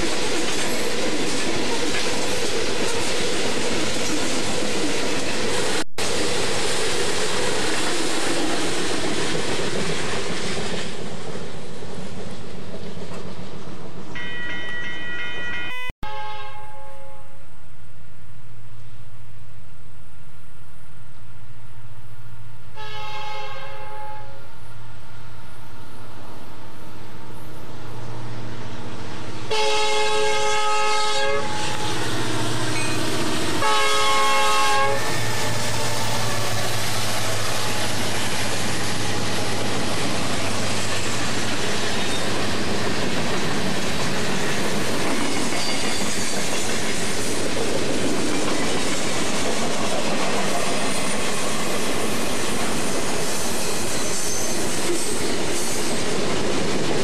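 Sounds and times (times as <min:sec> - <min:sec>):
train air horn: 0:14.2 - 0:17.4, 0:22.8 - 0:24.6, 0:29.5 - 0:36.8.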